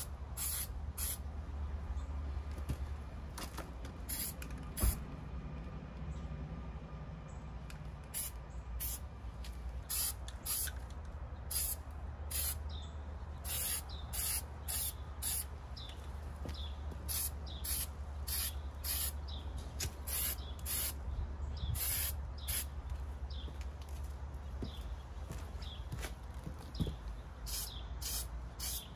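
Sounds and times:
aerosol spray can hissing: 0.4s - 1.2s, 13.5s - 15.4s, 21.8s - 22.6s, 27.5s - 28.9s.

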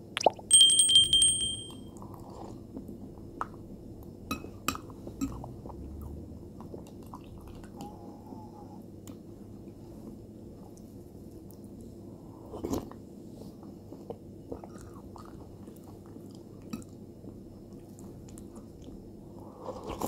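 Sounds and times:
spoon clinking on glass bowl: 0.5s - 1.8s.

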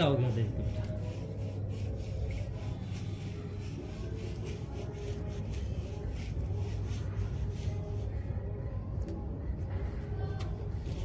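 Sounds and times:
hands rubbing wet dog coat: 0.0s - 8.1s.

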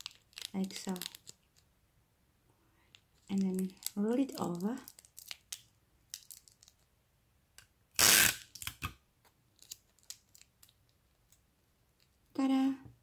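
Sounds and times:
plastic film crinkling: 0.0s - 1.7s, 2.9s - 6.9s, 9.5s - 11.4s.

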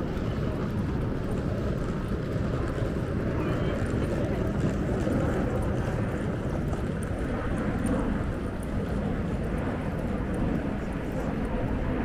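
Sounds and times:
low street rumble: 0.0s - 12.0s.

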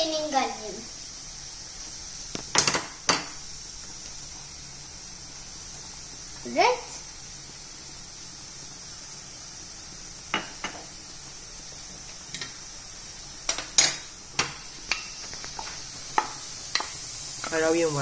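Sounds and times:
faint steady hiss: 0.0s - 18.0s
spoon and bowls tapping saucepan: 10.3s - 10.9s.

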